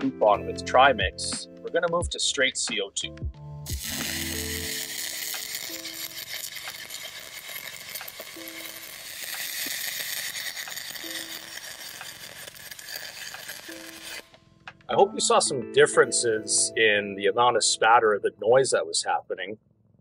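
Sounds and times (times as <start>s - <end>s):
welding arc crackling sizzle: 3.7s - 14.4s
sharp spatter pops: 3.7s - 14.9s.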